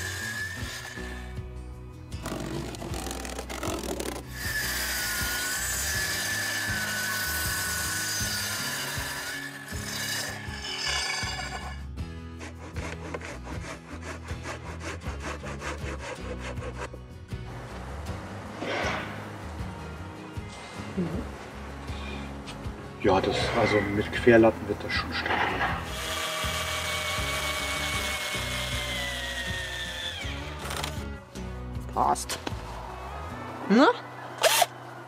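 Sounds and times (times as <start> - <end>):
track saw motor whine: 0.0 - 1.3, 25.8 - 31.1, 34.3 - 35.0.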